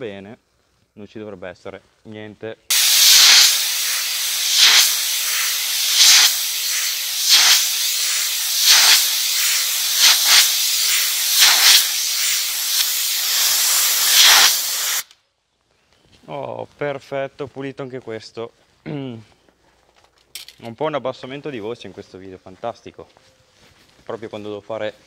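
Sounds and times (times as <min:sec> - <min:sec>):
compressed air hissing: 0:02.7 - 0:15.1.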